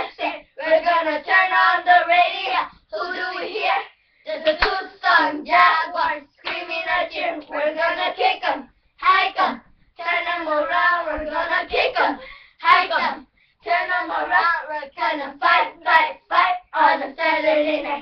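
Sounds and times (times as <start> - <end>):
girls chanting a cheer: 0.0 - 18.0.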